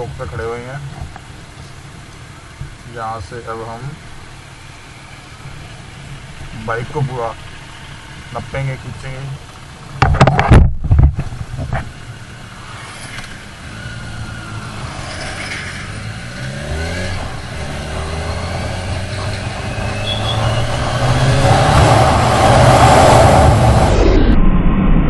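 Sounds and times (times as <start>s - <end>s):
motorcycle engine accelerating: 9.5s - 24.4s
wind noise rushing: 15.8s - 25.0s.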